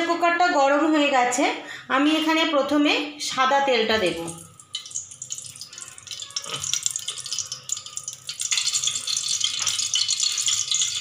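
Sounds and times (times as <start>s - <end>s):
oil crackling and sizzling: 4.0s - 11.0s.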